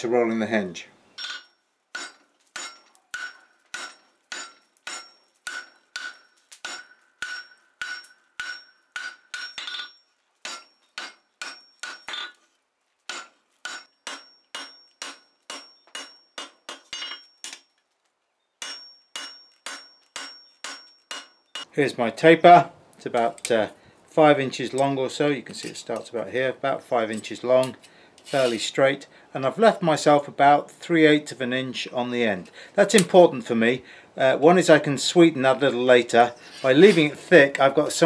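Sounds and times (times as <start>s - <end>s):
hammer striking steel on anvil: 1.2s - 12.4s, 13.1s - 17.8s, 18.6s - 21.7s.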